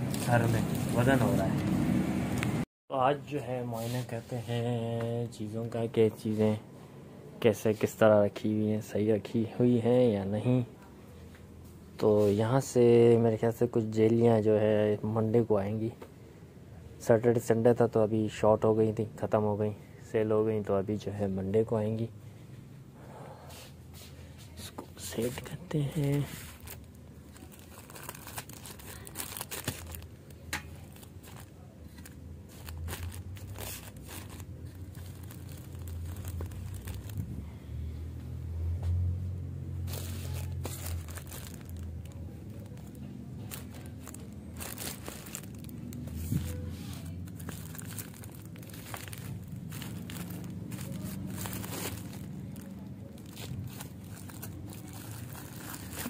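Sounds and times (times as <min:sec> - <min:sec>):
plastic wrapping crinkling: 0:25.2 - 0:37.3, 0:39.8 - 0:56.0.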